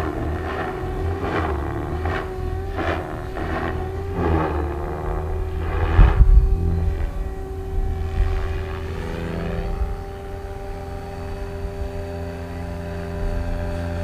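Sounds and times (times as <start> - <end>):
rushing swell: 0.0 - 11.1
model helicopter whine: 0.0 - 14.0.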